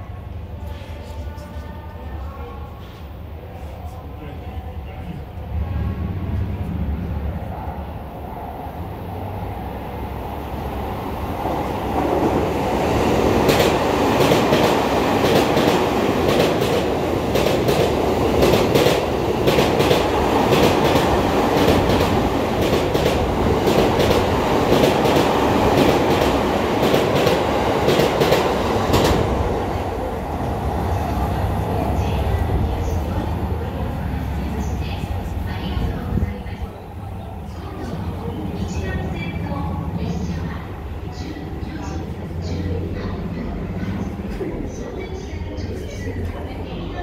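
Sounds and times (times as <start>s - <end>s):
train wheels rumbling on rail: 8.8s - 47.0s
rhythmic clacks of rail joints: 10.9s - 36.3s.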